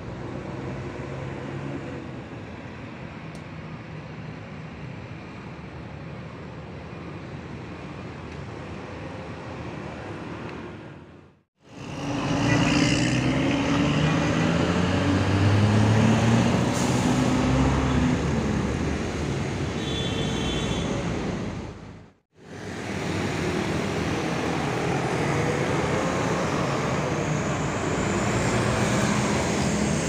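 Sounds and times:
road traffic noise: 0:00.0 - 0:30.0
bus diesel engine accelerating: 0:11.6 - 0:19.7, 0:21.0 - 0:30.0.

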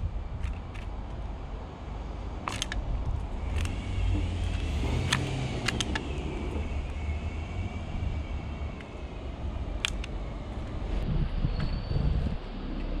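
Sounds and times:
car passing: 0:00.0 - 0:11.4
low traffic rumble: 0:00.0 - 0:13.0.

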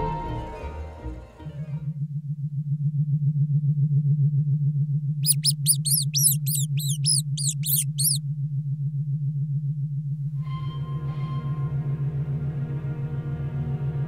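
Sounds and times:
high falling chirps: 0:05.3 - 0:08.2.

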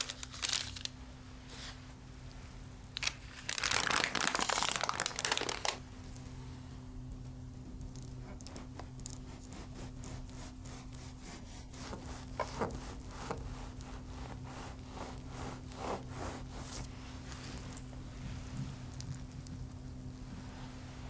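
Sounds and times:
bread knife sawing through cake: 0:09.2 - 0:16.8.

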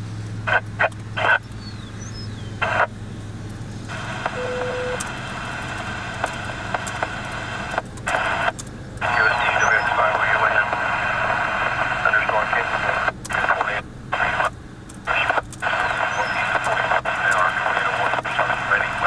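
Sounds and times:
open-channel radio hiss: 0:00.5 - 0:01.4, 0:02.6 - 0:02.9, 0:03.9 - 0:19.0
radio static bursts: 0:00.5 - 0:01.4, 0:02.6 - 0:02.9, 0:03.9 - 0:19.0
brief radio beep: 0:04.3 - 0:05.0, 0:09.0 - 0:10.6.

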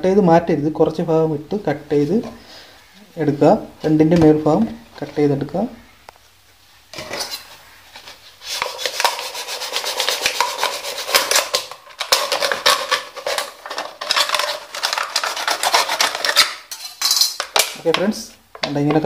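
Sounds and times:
knife sawing plastic bottle: 0:08.4 - 0:16.6.

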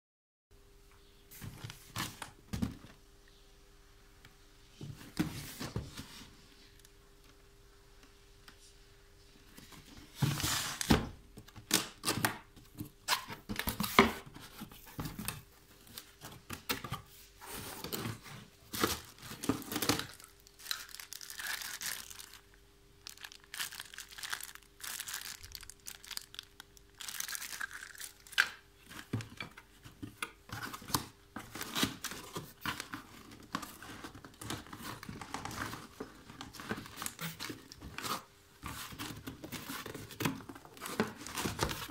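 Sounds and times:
packaging rustling and crinkling: 0:12.8 - 0:41.9.

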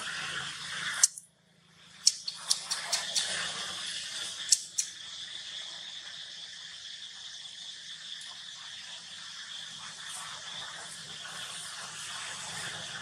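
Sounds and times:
sharp clicks: 0:02.0 - 0:03.5, 0:04.5 - 0:04.9.

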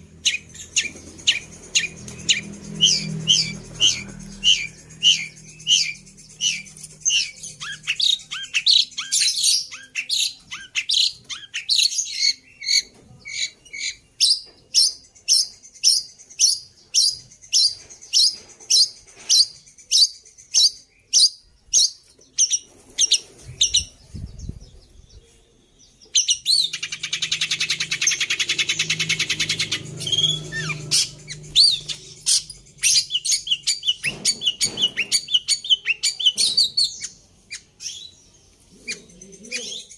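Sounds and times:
bird buzzing chatter: 0:00.0 - 0:09.6, 0:26.7 - 0:37.2
bird chirping sharply: 0:00.0 - 0:39.9.

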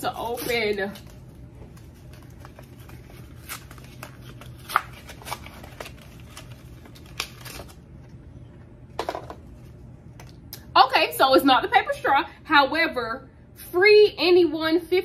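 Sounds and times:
faint steady hum: 0:00.0 - 0:15.0
paper tearing and crinkling: 0:01.8 - 0:07.8.

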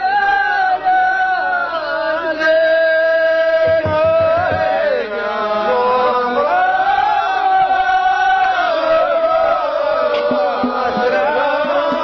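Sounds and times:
men chanting call-and-response: 0:00.0 - 0:12.0
low thumps: 0:03.7 - 0:04.9.

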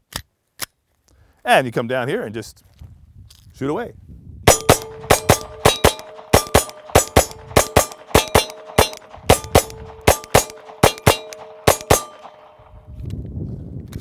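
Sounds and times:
pistol firing rapidly: 0:04.5 - 0:12.8
steel targets ringing: 0:04.5 - 0:12.8.

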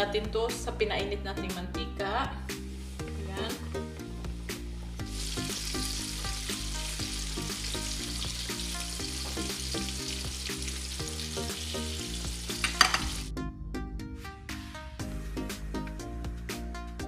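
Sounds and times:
chicken deep-frying in oil: 0:05.0 - 0:13.3.

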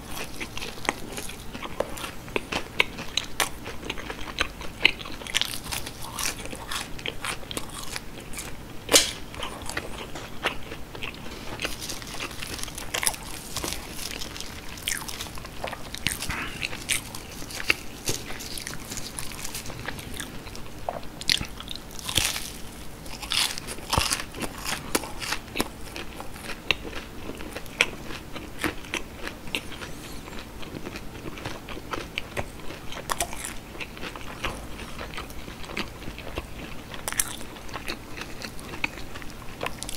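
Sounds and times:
crunching and chewing fried food: 0:00.0 - 0:39.9
loud crunchy snap: 0:08.9 - 0:09.4.

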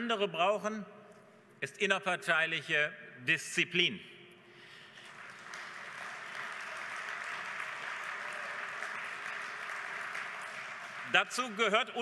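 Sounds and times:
audience applauding: 0:04.9 - 0:12.0.

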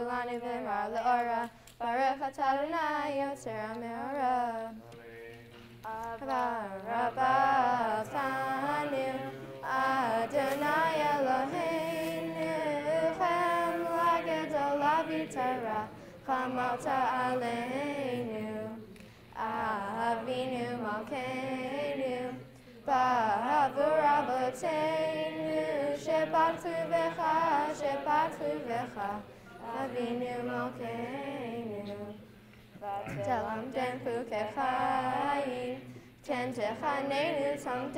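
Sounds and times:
girls singing unaccompanied: 0:00.0 - 0:37.9.

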